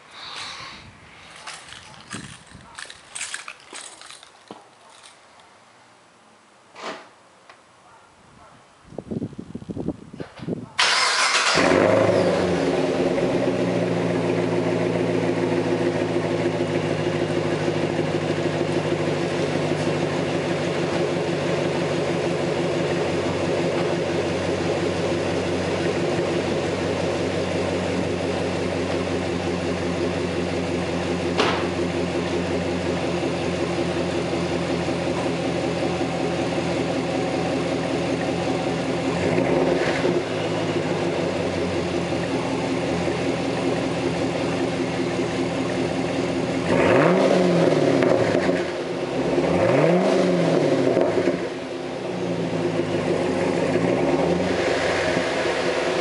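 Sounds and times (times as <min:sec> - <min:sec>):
car engine revving: 0:10.8 - 0:20.9, 0:24.8 - 0:56.0
car engine idling: 0:10.8 - 0:47.1, 0:50.7 - 0:56.0.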